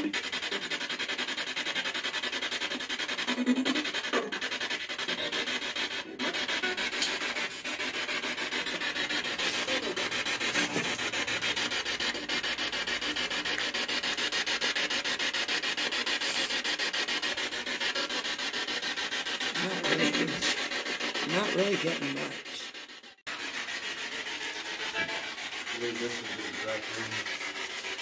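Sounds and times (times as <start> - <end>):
stuttering radio static: 19.6 - 20.6, 21.2 - 22.6.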